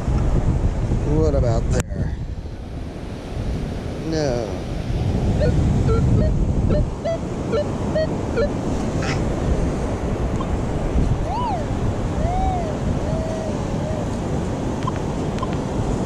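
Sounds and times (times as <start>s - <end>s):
wind on microphone: 0.0s - 16.0s
metal detector beeps: 5.4s - 8.6s.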